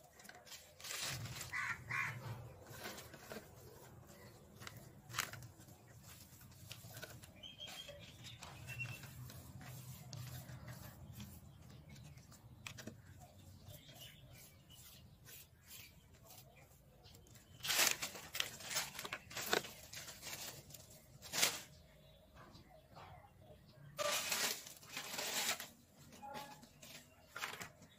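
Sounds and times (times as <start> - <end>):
plant leaves rustling: 0.0 - 11.3, 17.4 - 21.8, 24.0 - 27.9.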